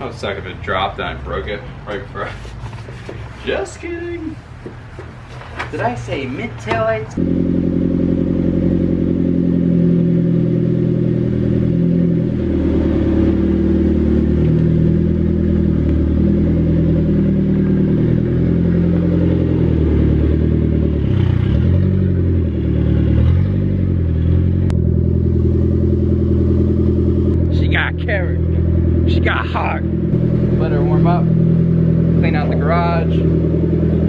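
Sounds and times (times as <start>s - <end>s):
car engine running at low revs: 7.2s - 34.0s.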